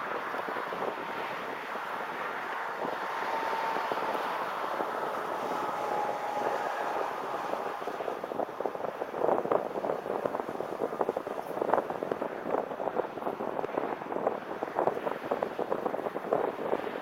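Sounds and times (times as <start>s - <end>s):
tyre and road noise: 0.0s - 17.0s
wind buffeting crackles: 0.0s - 17.0s
wind rushing over microphone: 0.0s - 17.0s.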